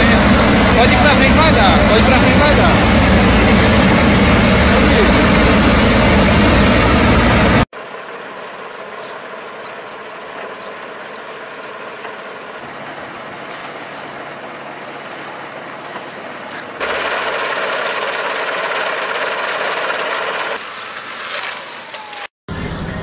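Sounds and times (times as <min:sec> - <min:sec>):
heavy diesel engine rattling: 0:00.0 - 0:20.6.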